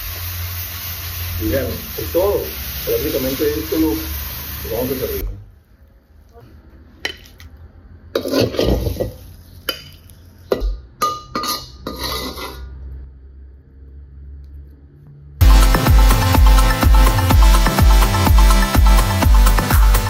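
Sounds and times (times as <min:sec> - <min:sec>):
metal ladle scraping a wok: 0:08.1 - 0:09.8, 0:11.4 - 0:12.9.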